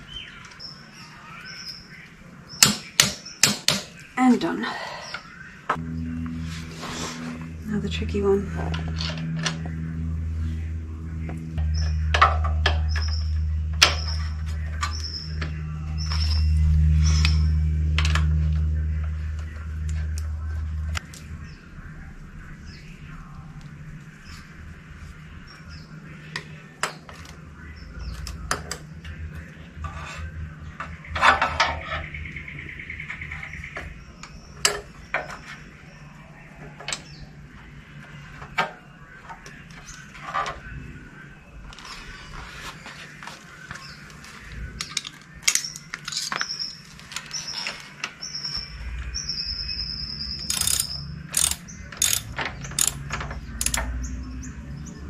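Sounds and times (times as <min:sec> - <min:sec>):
ratchet wrench clicking: 0:50.4 - 0:53.9.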